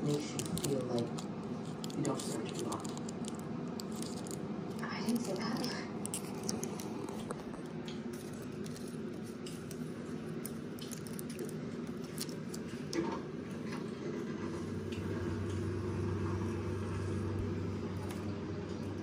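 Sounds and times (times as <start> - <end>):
cardboard toys clicking and rustling: 0.0 - 12.7
steady low hum: 0.0 - 19.0.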